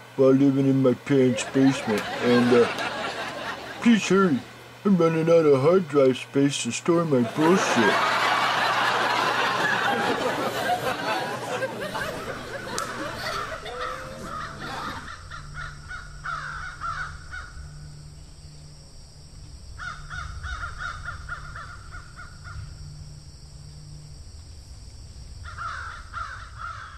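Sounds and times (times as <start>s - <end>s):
crows cawing: 11.9s - 17.9s, 19.8s - 22.7s, 25.4s - 26.9s.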